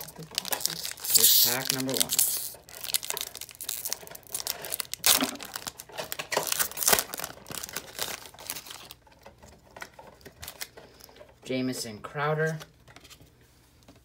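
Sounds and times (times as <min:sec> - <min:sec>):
foil wrapper crinkling and ripping: 0:00.0 - 0:11.1.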